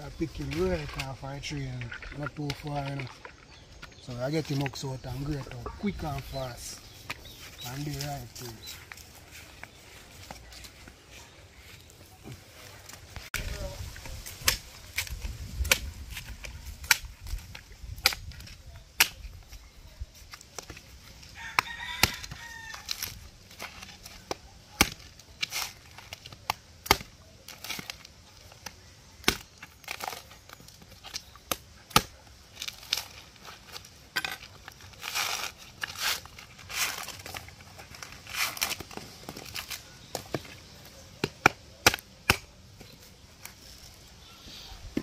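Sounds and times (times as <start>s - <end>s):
knife chopping coconut husk: 14.2s - 17.1s, 18.0s - 19.3s, 21.6s - 28.0s, 28.6s - 30.2s, 31.1s - 33.0s, 41.2s - 42.9s
rooster crowing: 21.4s - 22.9s.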